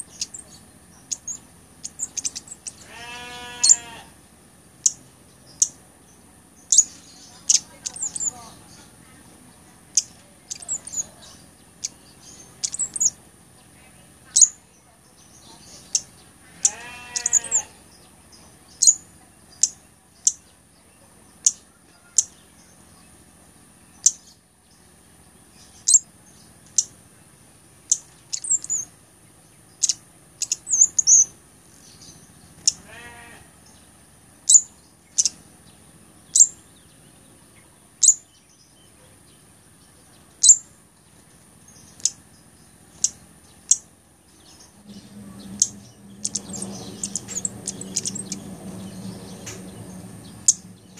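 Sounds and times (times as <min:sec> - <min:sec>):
high-pitched bird calls: 0:00.0 - 0:04.1, 0:04.8 - 0:13.2, 0:13.8 - 0:20.6, 0:21.2 - 0:23.2, 0:23.8 - 0:24.5, 0:25.5 - 0:27.0, 0:27.8 - 0:50.9
wavering bleat-like animal call: 0:02.7 - 0:04.2, 0:16.4 - 0:17.8, 0:32.7 - 0:33.6
faint high whine: 0:39.9 - 0:50.9.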